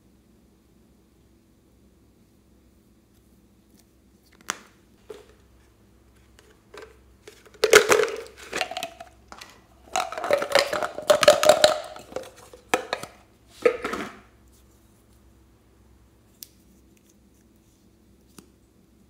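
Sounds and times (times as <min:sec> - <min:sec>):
plastic crackling and rubbing: 0:06.2 - 0:14.2.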